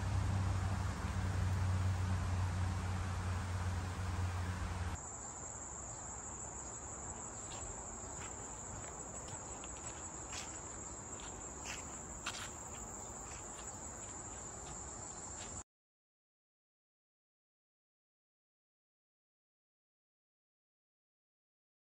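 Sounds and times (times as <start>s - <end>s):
rush of noise with low hum: 0.0s - 5.0s
crickets chirping: 0.0s - 15.6s.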